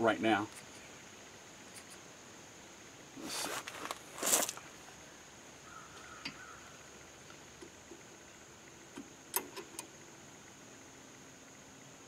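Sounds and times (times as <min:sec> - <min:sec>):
high insect drone: 0:00.0 - 0:12.0
short hissing burst: 0:03.2 - 0:04.6.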